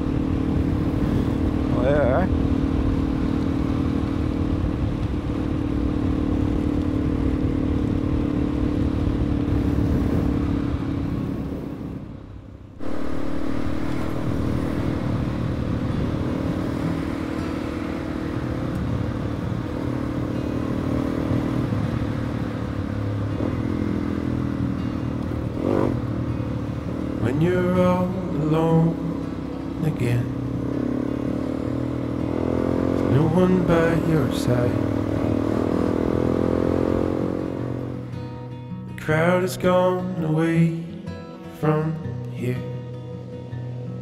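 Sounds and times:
motorcycle engine running: 0.0 - 38.5.

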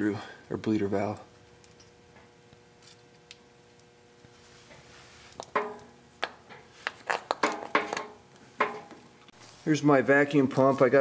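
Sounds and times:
faint steady hum: 0.0 - 11.0
sharp clicks and knocks: 5.4 - 9.0.

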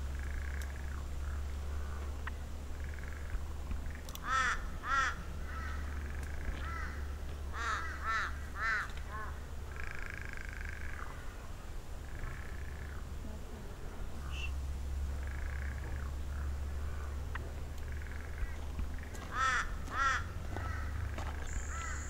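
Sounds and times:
low hum: 0.0 - 22.0
crow cawing: 4.1 - 11.4, 15.2 - 22.0.

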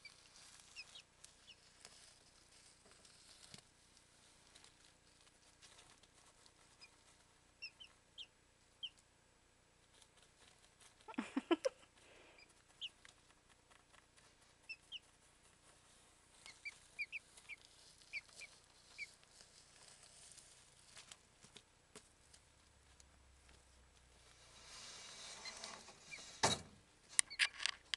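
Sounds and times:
chicks peeping: 0.0 - 2.1, 5.5 - 9.1, 11.0 - 19.6.

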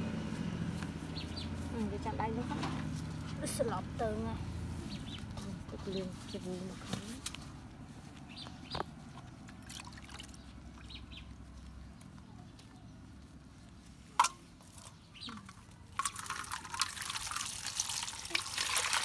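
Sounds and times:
water splashing and dripping in bowl: 9.1 - 11.2, 14.2 - 19.0.

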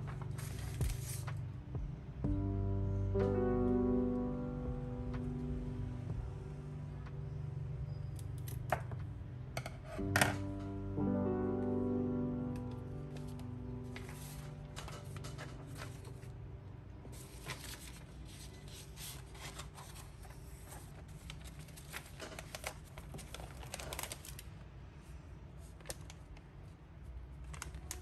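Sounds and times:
paper rustling: 0.0 - 1.5, 13.0 - 16.4, 17.0 - 24.6
faint low hum: 0.0 - 28.0.

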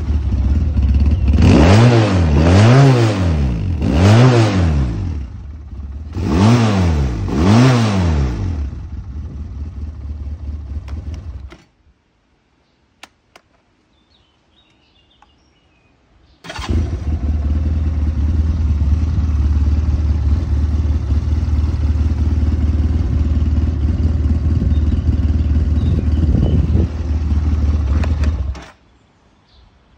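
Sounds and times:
quad engine revving and idling: 0.0 - 11.5, 16.5 - 28.7
click: 13.0 - 13.6, 14.6 - 15.4.

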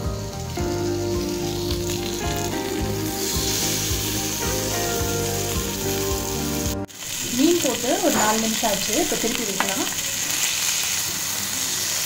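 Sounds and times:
background music with steady beat: 0.0 - 6.9
fish sizzling on grill pan: 0.0 - 12.0.

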